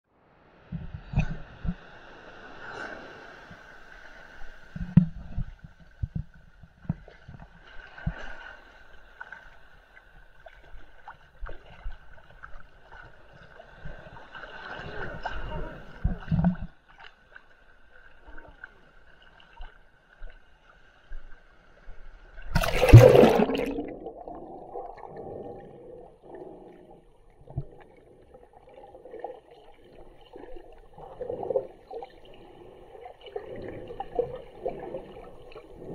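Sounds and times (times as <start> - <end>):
loud splash: 22.6 - 24.3
sea water sloshing: 22.6 - 35.9
underwater gurgling and bubbling: 22.6 - 35.9.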